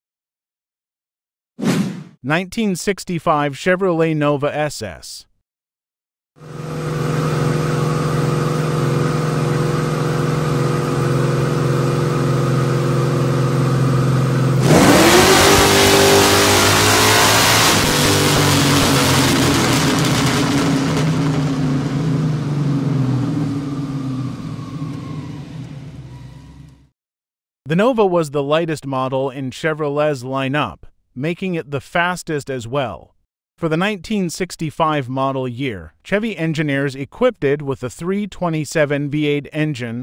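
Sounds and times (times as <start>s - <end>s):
car engine revving on a dyno: 6.4s - 26.8s.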